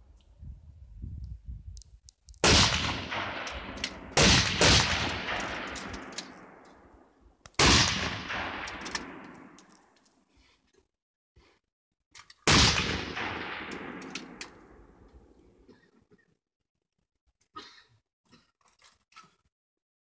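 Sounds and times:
rifle shots echoing: 2.4 - 6.9, 7.6 - 9.6, 12.5 - 15.0.

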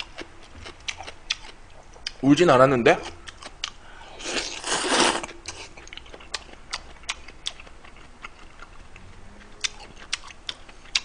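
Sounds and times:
chewing with smacks: 0.0 - 2.2, 3.0 - 3.8, 5.4 - 11.0
person slurping noodles: 4.2 - 5.6.

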